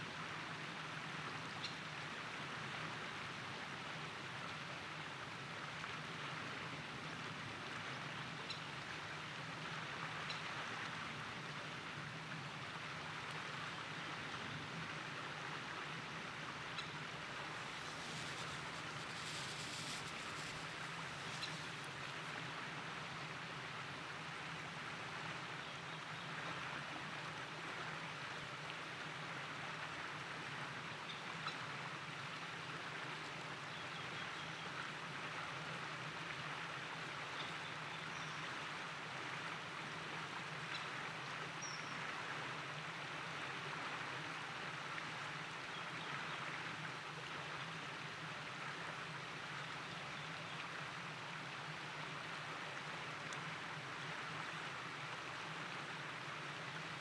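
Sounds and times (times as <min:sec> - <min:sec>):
stream rushing: 0:08.8 - 0:25.6, 0:38.5 - 0:57.0.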